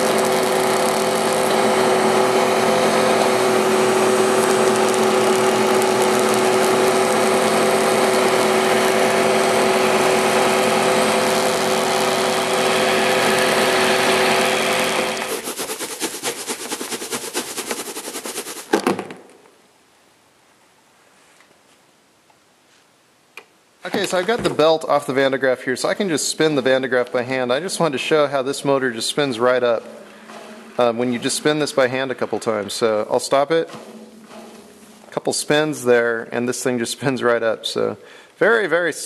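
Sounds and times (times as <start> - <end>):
motor and belt whirring: 0.0 - 18.4.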